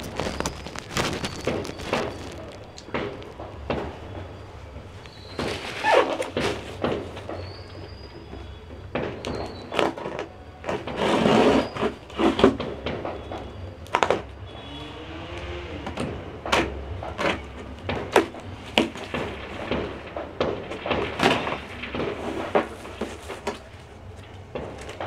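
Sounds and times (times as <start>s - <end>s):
tool scraping packing tape: 0.0s - 2.6s, 5.3s - 6.8s, 9.7s - 12.7s.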